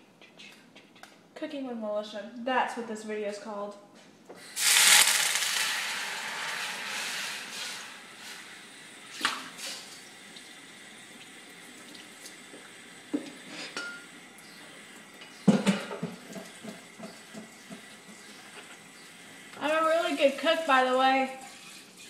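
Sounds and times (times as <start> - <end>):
pans and utensils clattering: 15.4 - 17.8.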